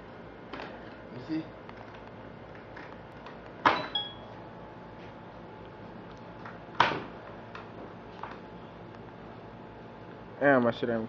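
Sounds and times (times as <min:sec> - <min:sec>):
short ringing clink: 0:03.8 - 0:04.3.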